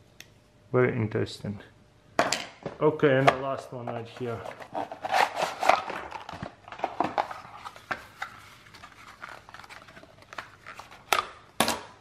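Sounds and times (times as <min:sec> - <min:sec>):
cardboard packaging rustling: 0:04.0 - 0:11.2.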